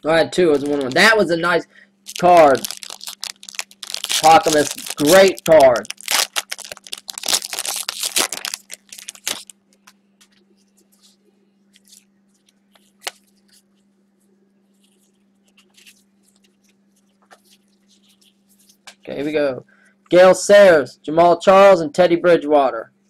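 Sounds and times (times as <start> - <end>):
faint steady hum: 0.0 - 23.0
wrapper tearing and crinkling: 0.5 - 1.2, 2.1 - 9.9, 12.8 - 13.6
cards rustling and clicking: 2.1 - 11.2.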